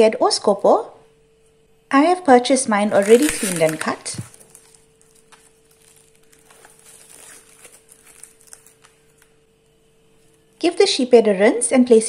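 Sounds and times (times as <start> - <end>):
faint steady hum: 0.0 - 12.0
plastic film crinkling: 2.8 - 10.5.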